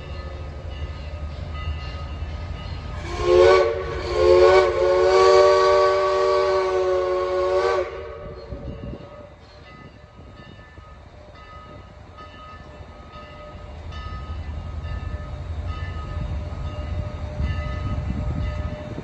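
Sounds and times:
low rumble of moving train: 0.0s - 19.0s
steam whistle blasts: 2.9s - 9.3s.

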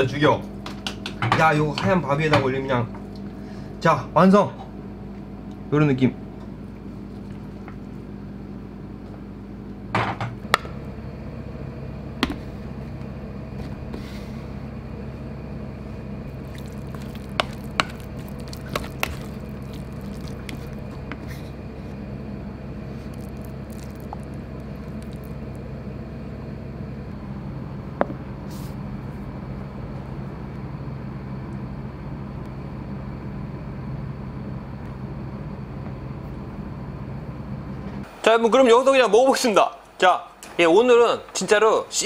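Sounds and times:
steady low hum: 0.0s - 38.7s
spatula squishing paste in pan: 16.3s - 21.4s, 23.0s - 25.6s.

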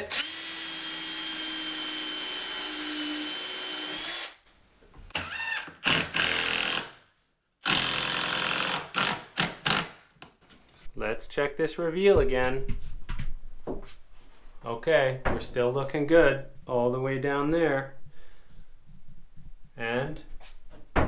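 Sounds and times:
power drill driving screw into wood: 0.1s - 4.4s, 5.1s - 7.0s, 7.6s - 10.0s.

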